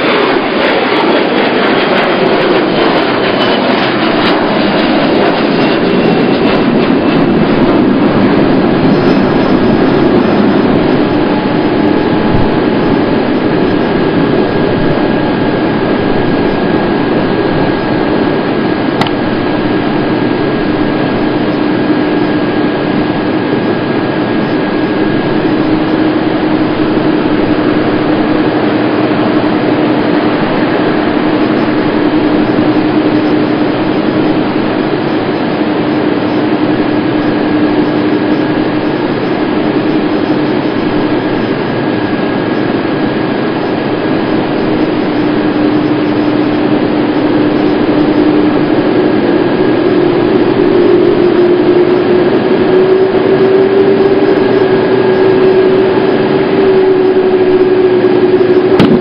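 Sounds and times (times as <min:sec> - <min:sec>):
jet engines whining rumble: 0:00.0 - 0:59.0.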